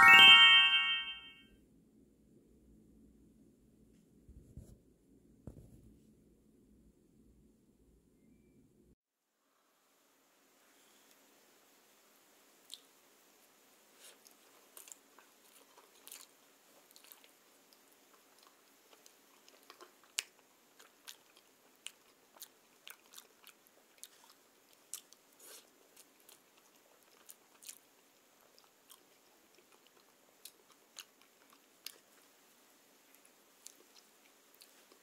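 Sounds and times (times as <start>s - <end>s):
chewing bread mouth clicks: 14.1s - 32.4s, 33.1s - 35.0s.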